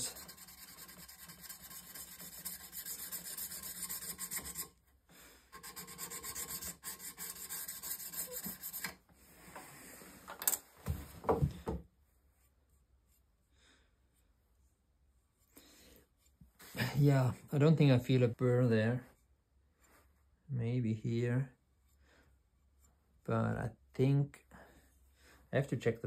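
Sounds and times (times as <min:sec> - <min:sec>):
honing paddle scratching on steel: 0:05.6 - 0:09.0.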